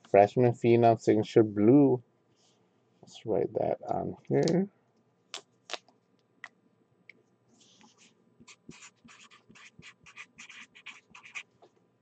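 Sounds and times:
permanent marker writing: 7.6s - 11.6s.

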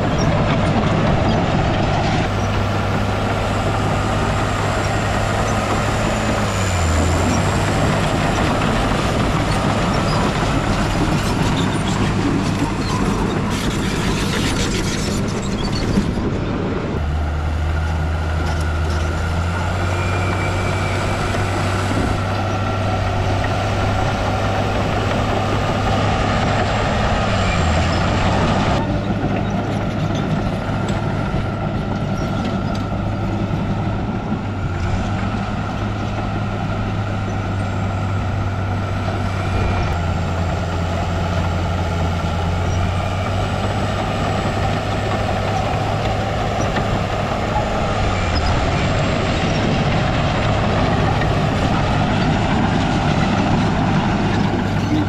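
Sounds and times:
diesel engine droning: 0.0s - 55.0s.

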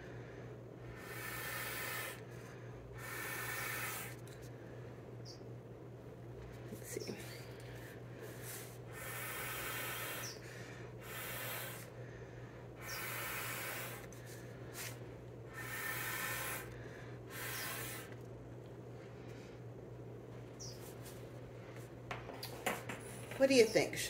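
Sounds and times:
faint low hum: 0.0s - 24.0s
air blower rushes: 0.8s - 4.3s, 7.7s - 12.2s, 12.8s - 18.2s.

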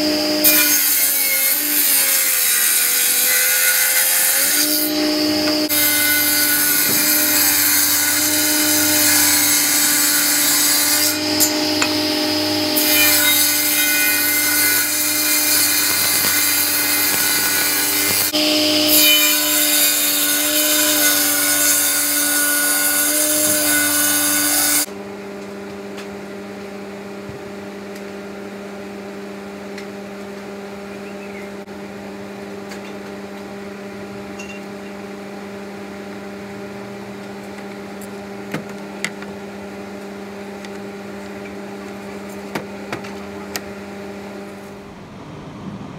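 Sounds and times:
table saw ripping boards: 0.3s - 24.9s.

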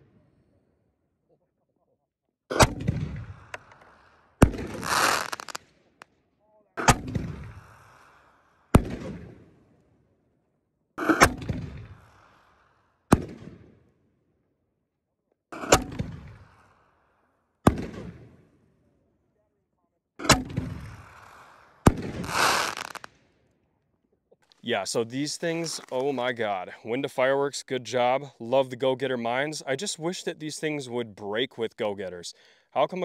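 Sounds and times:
fireworks booming with echo: 2.6s - 5.6s, 6.8s - 8.2s, 8.8s - 9.8s, 11.0s - 12.5s, 13.1s - 13.8s, 15.6s - 16.8s, 17.7s - 18.6s, 20.2s - 23.2s
hissing firework burst: 4.6s - 5.6s, 20.7s - 23.1s.

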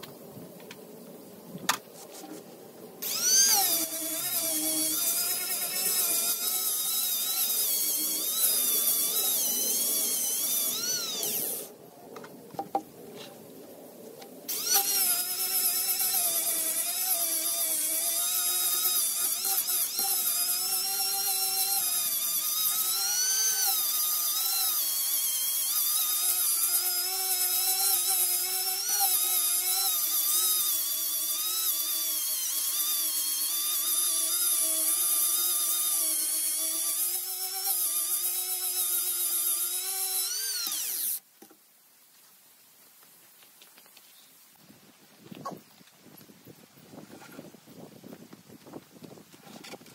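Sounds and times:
power tool grinding wood: 3.0s - 11.7s, 14.5s - 41.2s.

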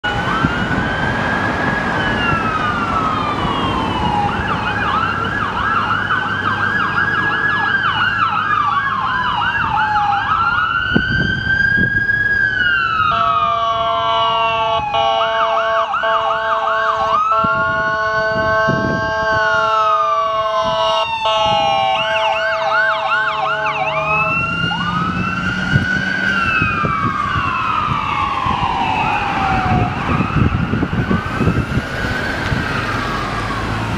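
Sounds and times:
ambulance siren wailing and yelping: 0.0s - 33.9s
steady horn-like tone: 20.6s - 24.4s.

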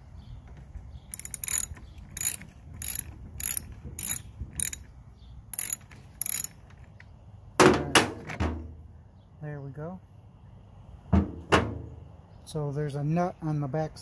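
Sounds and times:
socket ratchet wrench clicking: 1.1s - 4.9s, 5.6s - 6.7s.

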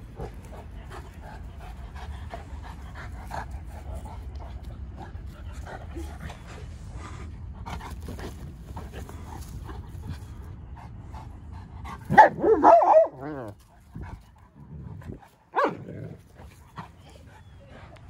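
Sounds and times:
dogs play-wrestling rumble: 0.0s - 12.1s, 13.2s - 18.0s
dog barking: 12.1s - 13.3s.

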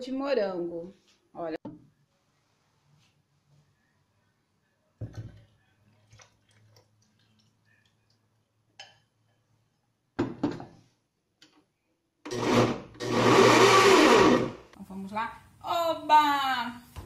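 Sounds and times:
blender running: 12.3s - 14.6s.

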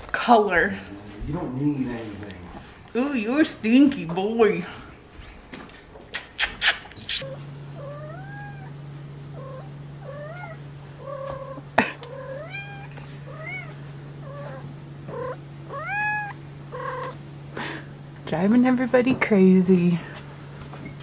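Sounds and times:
steady low hum: 0.0s - 21.0s
cat yowling: 7.2s - 17.2s.

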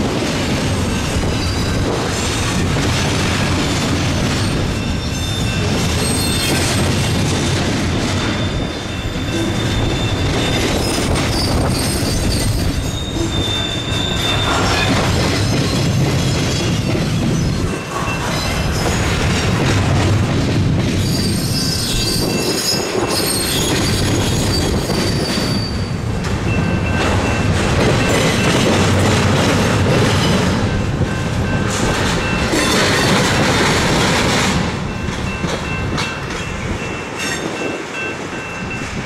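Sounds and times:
steel wheels rumbling on rail: 0.0s - 39.0s
high-pitched wheel squeal: 4.4s - 6.7s, 8.3s - 15.0s, 21.0s - 26.0s.

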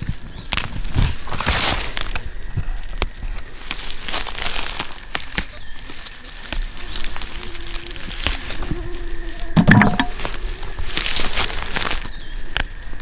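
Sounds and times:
plant stems snapping: 0.0s - 2.3s, 4.0s - 8.6s
dry grass rustling and crackling: 0.0s - 13.0s.

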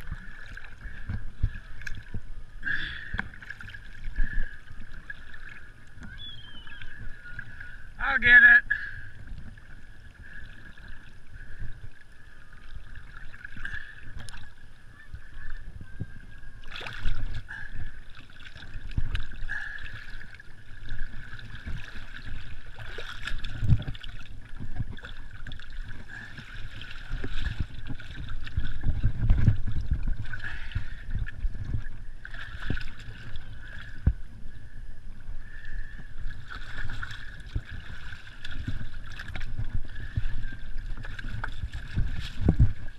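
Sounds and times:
water sloshing and splashing: 0.0s - 42.9s.

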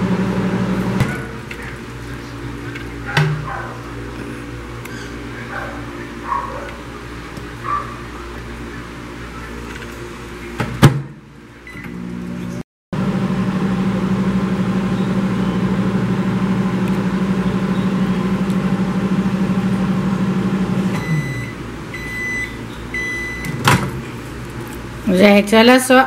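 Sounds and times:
microwave oven humming: 0.0s - 26.0s
short beeps: 21.0s - 23.6s.

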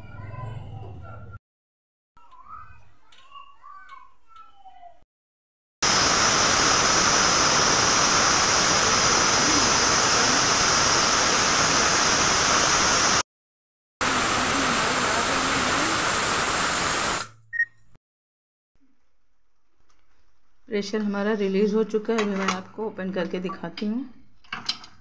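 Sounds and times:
pressure cooker steam hissing: 5.8s - 13.2s, 14.0s - 17.3s.

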